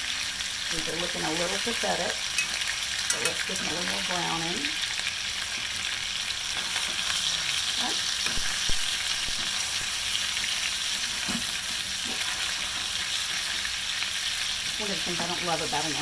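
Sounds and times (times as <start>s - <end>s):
chicken sizzling in hot oil: 0.0s - 16.0s
metal fork tapping pan: 2.4s - 3.7s.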